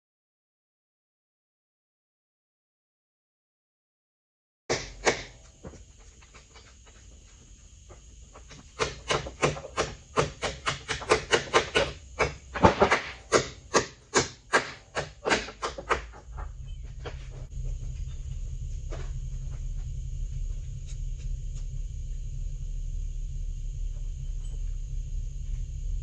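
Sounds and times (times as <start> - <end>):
low steady hum: 4.7 - 26.0
sharp knocks: 8.5 - 18.1.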